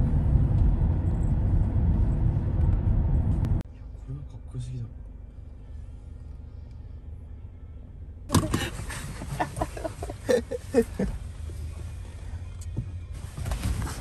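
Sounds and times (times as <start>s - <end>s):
low steady rumble: 0.0s - 14.0s
people laughing: 8.5s - 11.2s.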